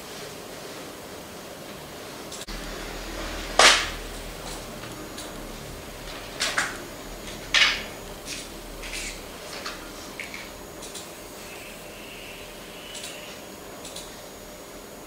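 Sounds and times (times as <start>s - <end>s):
low steady hum: 1.8s - 15.0s.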